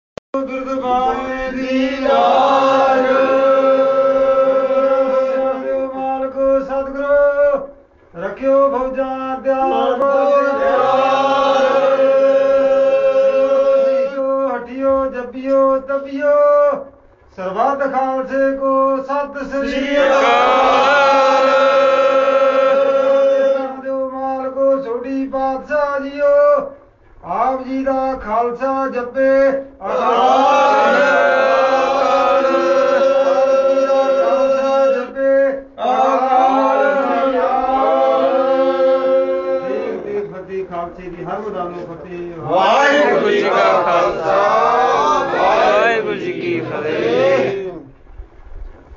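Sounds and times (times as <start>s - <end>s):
men chanting in unison: 0.7s - 7.3s, 9.4s - 14.7s, 19.4s - 24.5s, 29.0s - 40.7s, 42.4s - 47.9s.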